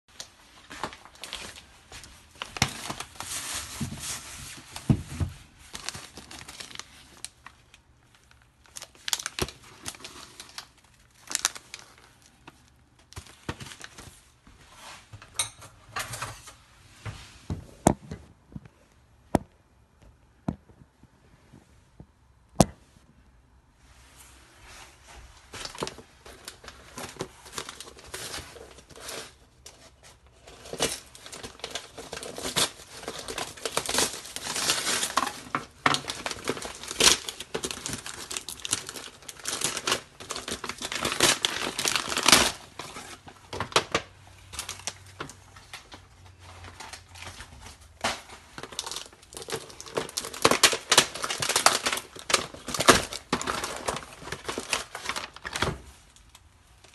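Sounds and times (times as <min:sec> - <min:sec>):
paper tearing and crinkling: 0:05.5 - 0:07.4, 0:08.4 - 0:12.3, 0:30.4 - 0:55.8.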